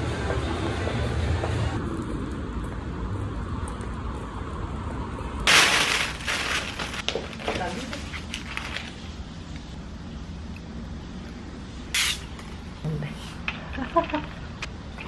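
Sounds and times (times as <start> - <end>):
low street rumble: 0.0 - 15.0
plastic bag crinkling: 5.5 - 9.0.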